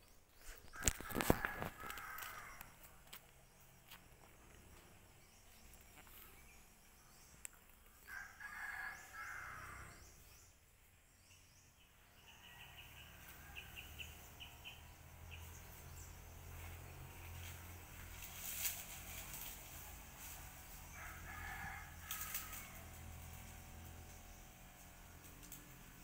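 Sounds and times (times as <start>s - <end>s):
faint rooster crowing: 0.7s - 2.8s, 8.0s - 10.2s, 12.1s - 14.3s, 20.9s - 23.5s.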